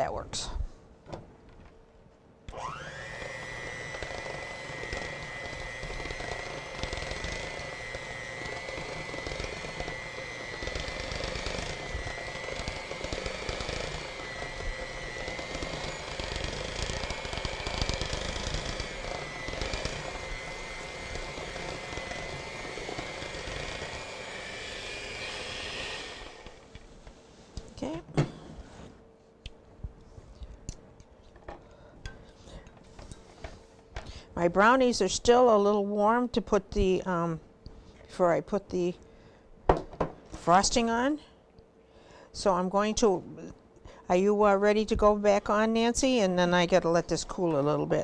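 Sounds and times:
electric hand mixer whirring: 0:02.5 - 0:26.8.

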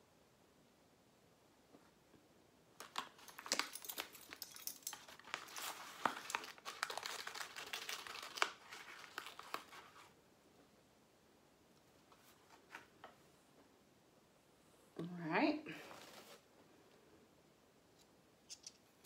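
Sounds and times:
foil packet crinkling and tearing: 0:02.8 - 0:10.1.

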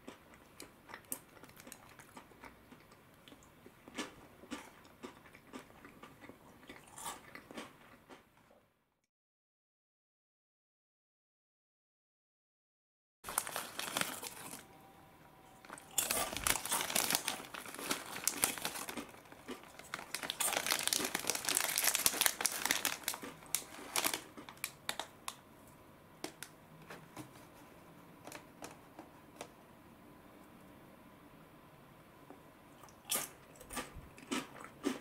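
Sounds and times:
foil snack pouch crinkling: 0:13.3 - 0:14.7, 0:15.6 - 0:25.1.

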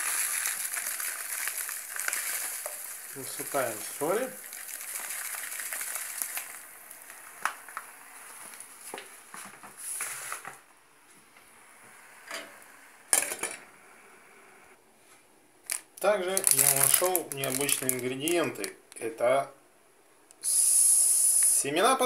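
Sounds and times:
salt poured into pot of water: 0:00.0 - 0:08.6, 0:15.7 - 0:18.1.

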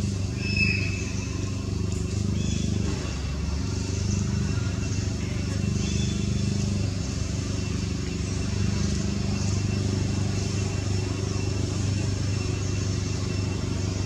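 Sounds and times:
steady low engine drone: 0:00.0 - 0:14.0.

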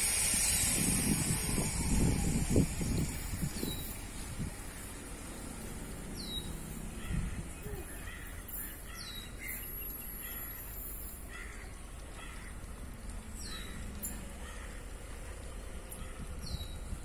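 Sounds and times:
wind on microphone: 0:00.0 - 0:04.8, 0:07.0 - 0:07.8.

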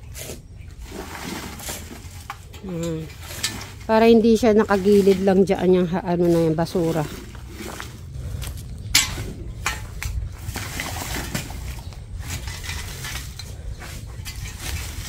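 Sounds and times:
metal digging tool striking dirt: 0:08.8 - 0:15.0.

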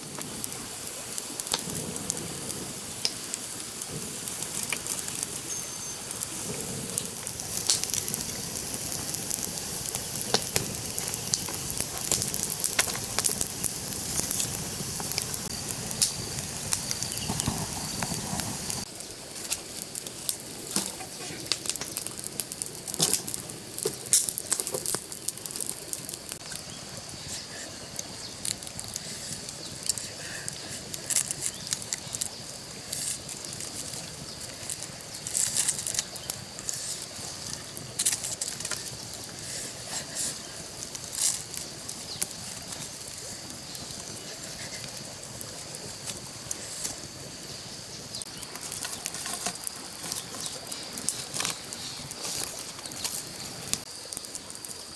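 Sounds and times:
sharp snaps and pops: 0:00.0 - 0:05.5, 0:06.1 - 0:54.9
wood fire crackling: 0:00.0 - 0:54.9
sticks rustling and knocking: 0:48.4 - 0:53.9.

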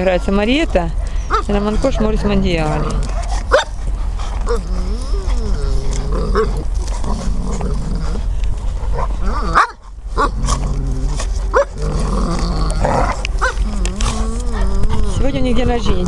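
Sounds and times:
dogs growling: 0:00.2 - 0:16.0
dogs barking sharply: 0:03.0 - 0:04.6, 0:13.0 - 0:13.7.

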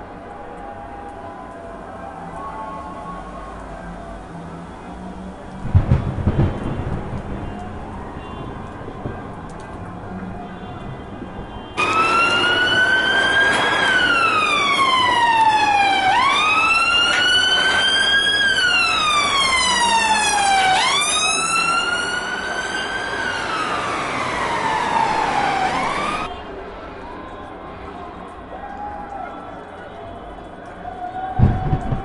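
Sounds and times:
siren wailing: 0:07.6 - 0:26.3, 0:31.0 - 0:32.0.

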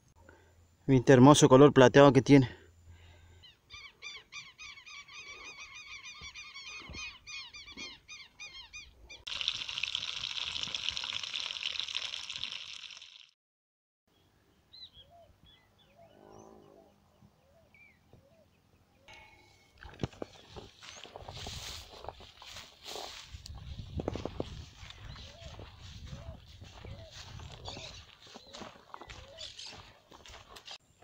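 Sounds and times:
birds calling: 0:03.0 - 0:09.3, 0:23.5 - 0:30.8
fish frying in oil: 0:09.3 - 0:13.4.

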